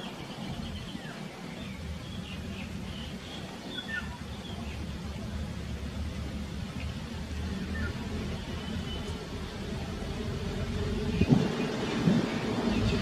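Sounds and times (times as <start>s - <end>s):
bird chirps and calls: 0.0s - 4.8s
steady low rumble: 0.0s - 13.0s.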